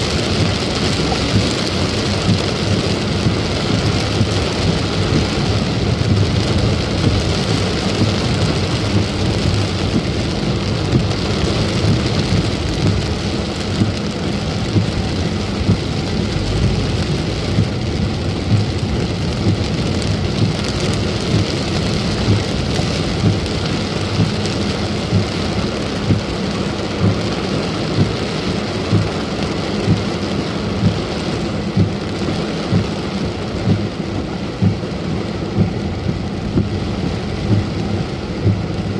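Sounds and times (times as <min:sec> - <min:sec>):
car rumbling on wet road: 0:00.0 - 0:38.9
heavy rain drumming on car roof: 0:00.0 - 0:38.9.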